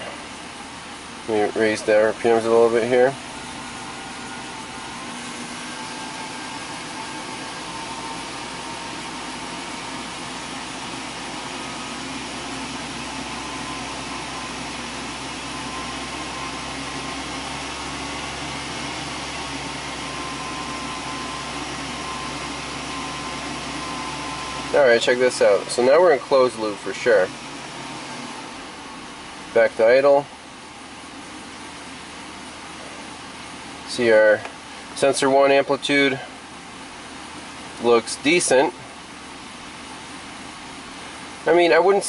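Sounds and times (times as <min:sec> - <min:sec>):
faint engine whine: 0:00.0 - 0:42.0
truck engine humming above idle: 0:00.0 - 0:42.0.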